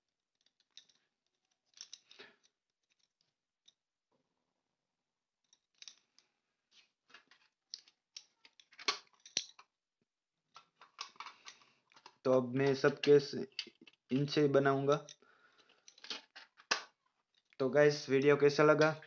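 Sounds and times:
wooden pencils clicking and rustling: 0.3 - 3.8, 5.5 - 9.7, 10.5 - 17.7.

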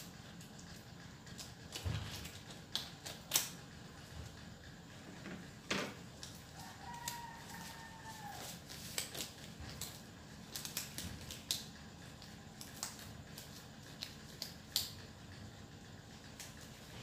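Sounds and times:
latex gloves clicking and rustling: 1.3 - 3.6, 6.2 - 15.1.

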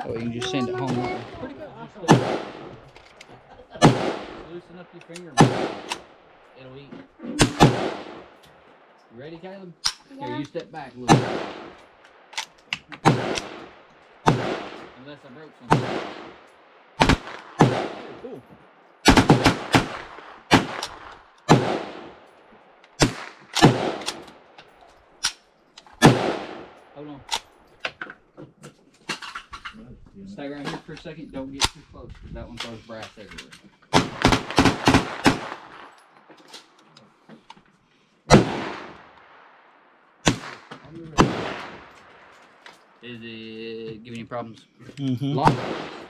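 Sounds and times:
echoing gunshots: 0.9 - 6.6, 7.3 - 9.0, 11.0 - 27.7, 33.9 - 36.0, 38.3 - 43.0, 45.4 - 46.0.

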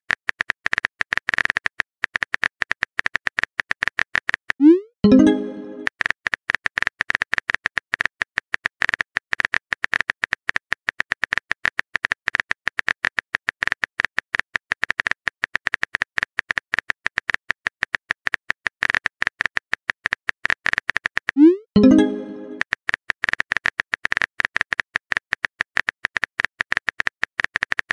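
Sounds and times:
message sent chime: 5.0 - 5.9, 21.4 - 22.6.

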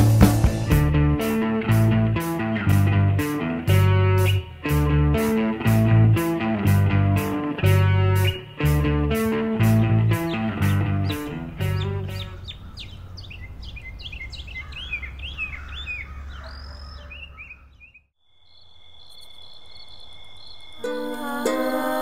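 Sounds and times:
small birds chirping: 7.4 - 20.9.

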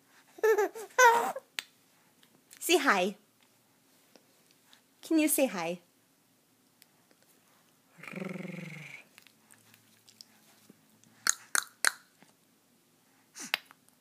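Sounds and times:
baby tongue clicks: 11.2 - 12.1.

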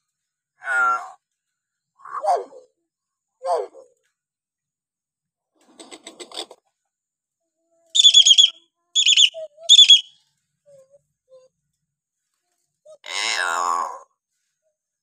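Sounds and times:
bird high-pitched calls: 8.0 - 10.2.

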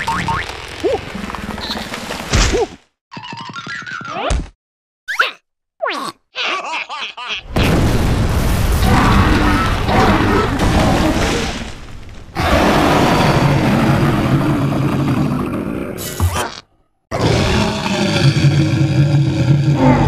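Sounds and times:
squeaky cartoon chirps: 5.1 - 6.1.

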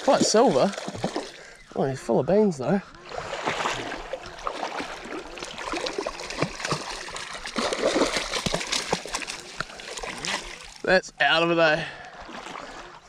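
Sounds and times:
fish thrashing and splashing water: 0.0 - 1.7, 3.0 - 10.8, 12.2 - 13.0.

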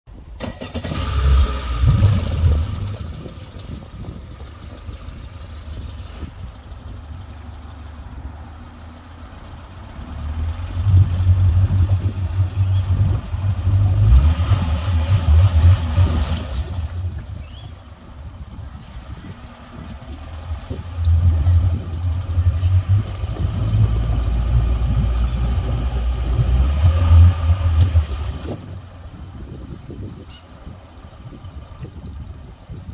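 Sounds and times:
outboard motor idling: 1.4 - 32.9.

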